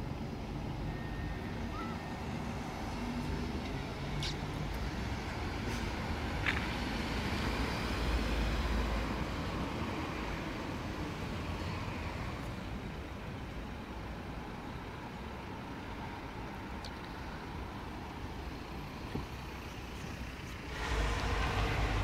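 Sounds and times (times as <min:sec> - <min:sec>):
van driving past: 0:19.8 - 0:22.0.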